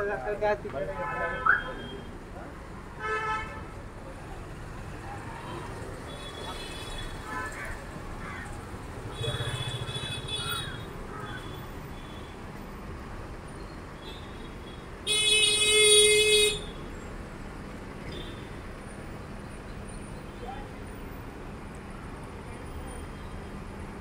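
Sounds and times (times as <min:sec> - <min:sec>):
street traffic: 0:00.0 - 0:24.0
vehicle horns honking: 0:01.0 - 0:02.1, 0:03.0 - 0:03.7, 0:09.1 - 0:12.4, 0:14.0 - 0:16.8.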